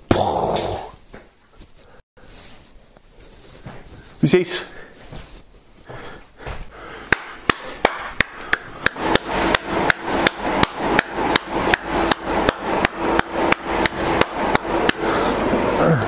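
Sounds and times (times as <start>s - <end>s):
blower whirring: 5.8s - 16.0s
hand clapping: 7.1s - 15.0s.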